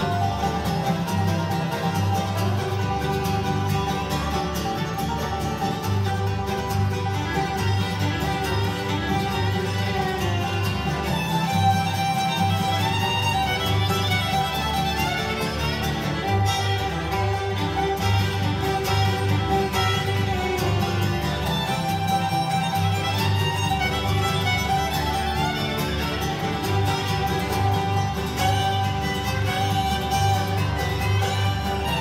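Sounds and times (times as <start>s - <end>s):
bluegrass band playing: 0.0s - 32.0s
fiddle: 0.0s - 32.0s.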